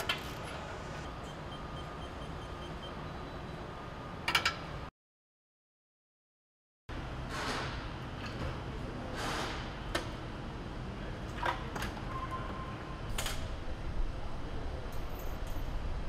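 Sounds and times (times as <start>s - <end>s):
factory low hum: 0.0s - 4.9s, 6.9s - 16.0s
faint steady beep: 1.2s - 3.6s.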